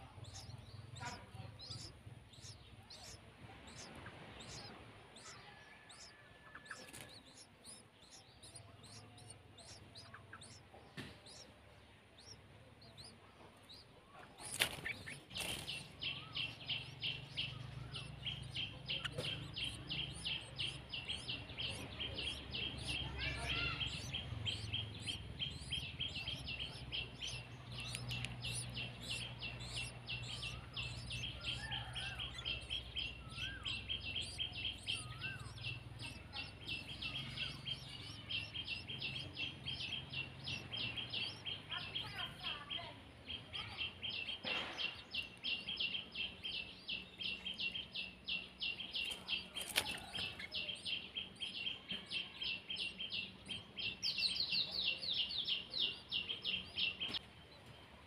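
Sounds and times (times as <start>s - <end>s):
nestlings chirping rapidly: 0.0s - 57.2s.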